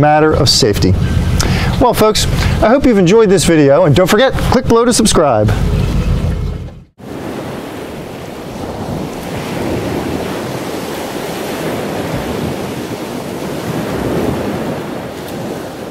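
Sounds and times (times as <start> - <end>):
waves rushing: 0.0 - 4.7, 5.4 - 15.9.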